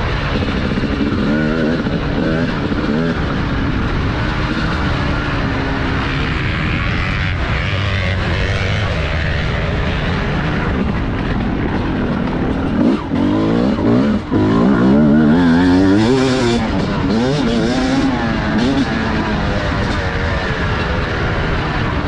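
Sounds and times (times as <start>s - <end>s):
motocross bike engine revving: 0.0s - 22.0s
wind rush on camera: 0.0s - 22.0s.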